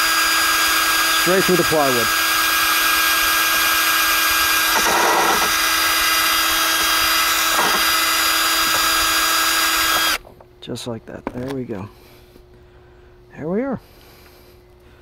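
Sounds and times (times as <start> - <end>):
power drill whining through wood: 0.0 - 10.2.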